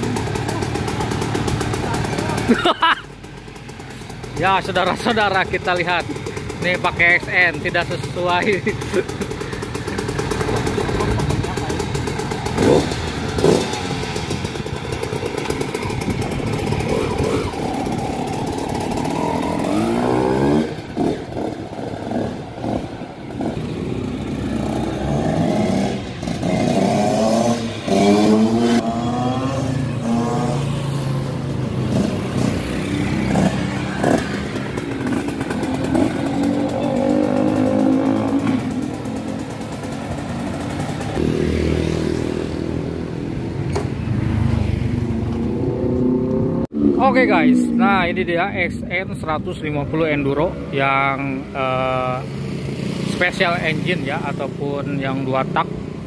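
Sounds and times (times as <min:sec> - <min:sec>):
dirt bike engine revving: 0:04.3 - 0:42.9.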